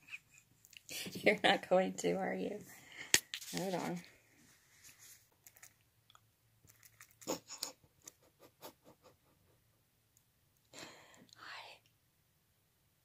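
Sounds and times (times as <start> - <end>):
rooster beak clicks and smacks: 5.5 - 8.2.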